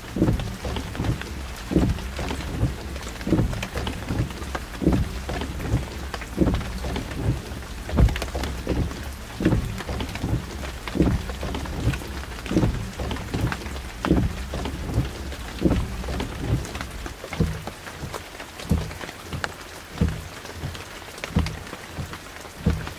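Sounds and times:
low rumble: 0.0s - 17.6s
rain falling: 0.0s - 22.9s.

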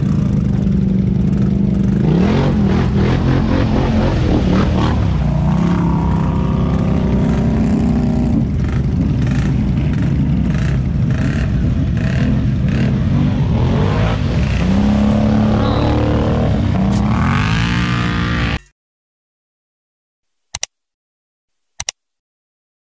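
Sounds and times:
atv engines revving: 0.0s - 18.6s
water and mud splashing: 0.0s - 18.6s
short clicks: 20.5s - 20.8s, 21.7s - 22.0s.

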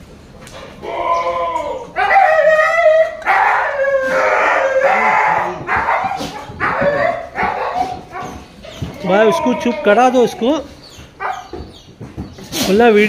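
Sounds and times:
goat bleating: 8.8s - 10.7s.

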